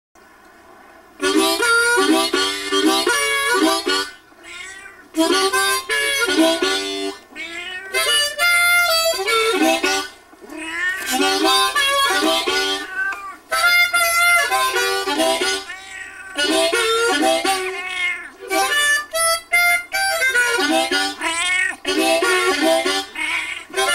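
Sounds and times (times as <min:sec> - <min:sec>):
harmonica playing: 0:01.2 - 0:04.2, 0:05.2 - 0:07.2, 0:07.8 - 0:10.2, 0:11.0 - 0:23.9
cat meowing: 0:04.4 - 0:05.2, 0:07.3 - 0:08.4, 0:10.4 - 0:11.4, 0:12.7 - 0:13.5, 0:15.4 - 0:16.5, 0:17.5 - 0:18.6, 0:21.2 - 0:22.0, 0:23.0 - 0:23.9.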